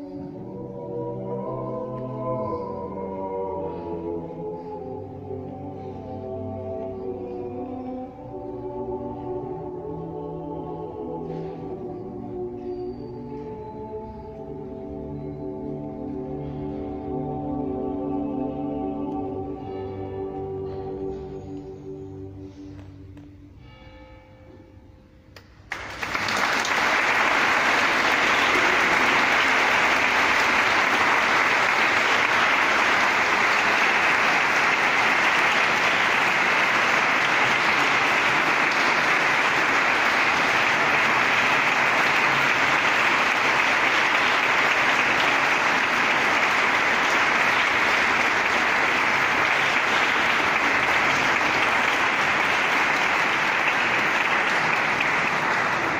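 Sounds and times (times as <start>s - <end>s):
choir singing: 0.0s - 16.4s, 27.1s - 55.9s
audience applauding: 25.7s - 55.9s.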